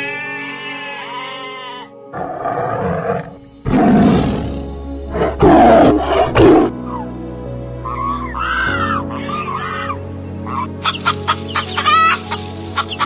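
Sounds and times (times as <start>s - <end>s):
soft background music: 0.0s - 13.0s
lion roaring: 2.1s - 6.7s.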